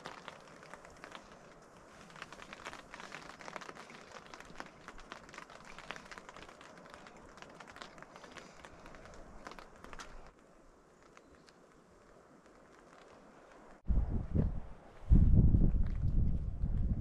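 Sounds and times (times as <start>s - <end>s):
rain pattering on a tent: 0.0s - 13.9s.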